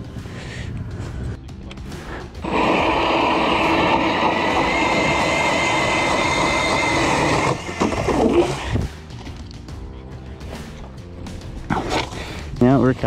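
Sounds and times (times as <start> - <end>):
electric ice auger whining: 2.4 - 8.8.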